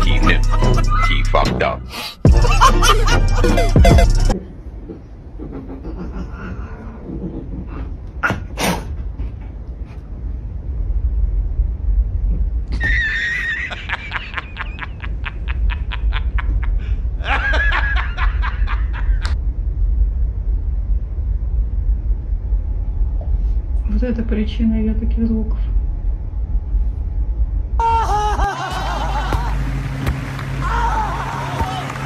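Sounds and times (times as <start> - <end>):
person laughing: 0.0 - 1.4, 2.3 - 4.3, 5.4 - 6.8, 12.8 - 19.4, 27.8 - 29.6.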